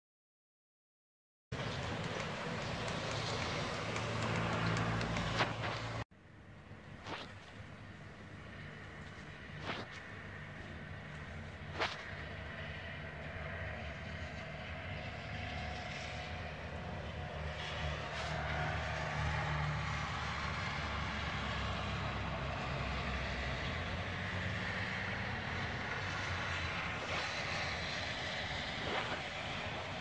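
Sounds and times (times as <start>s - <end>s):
falling wet snow hiss: 1.6s - 6.0s
traffic on wet road: 1.6s - 6.0s, 8.4s - 30.0s.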